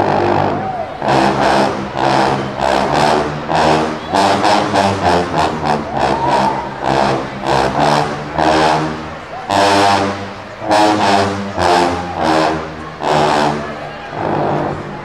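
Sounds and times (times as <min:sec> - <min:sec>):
sousaphones playing low notes: 0:00.0 - 0:15.0.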